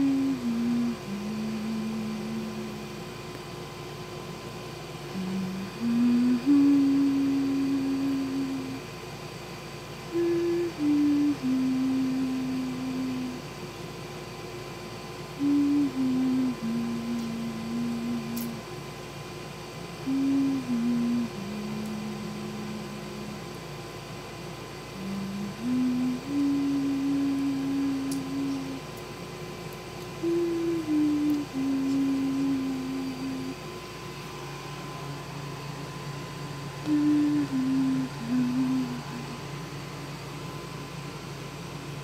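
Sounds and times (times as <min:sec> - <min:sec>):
person humming a soft tune: 0:00.0 - 0:03.3, 0:05.0 - 0:08.9, 0:10.0 - 0:13.6, 0:15.3 - 0:18.7, 0:20.0 - 0:23.6, 0:24.8 - 0:29.1, 0:30.0 - 0:34.7, 0:36.1 - 0:40.3.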